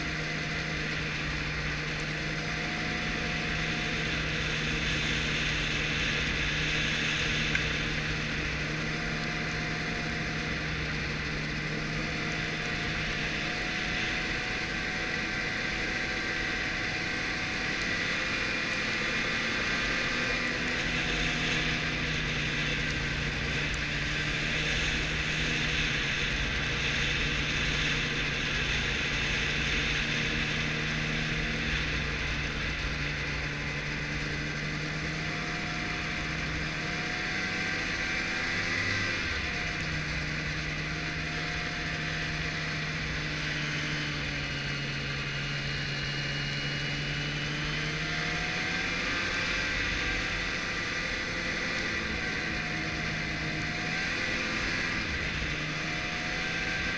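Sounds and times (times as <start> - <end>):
snowmobile engine running: 0.0 - 56.9.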